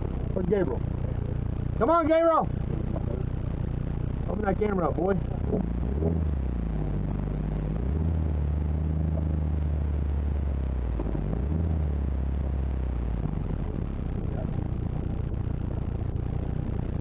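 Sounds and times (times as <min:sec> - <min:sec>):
truck engine droning: 0:00.0 - 0:17.0.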